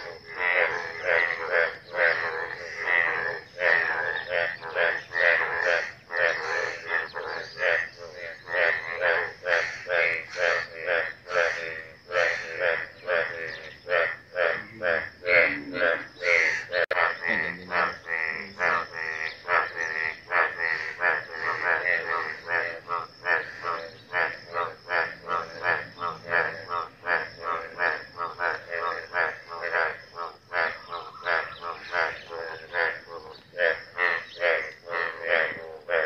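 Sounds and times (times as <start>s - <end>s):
chorus of frogs croaking: 0.0s - 36.0s.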